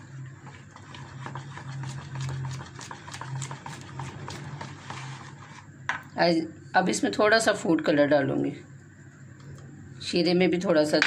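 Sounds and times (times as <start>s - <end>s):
spoon beating batter in bowl: 0.0s - 5.7s.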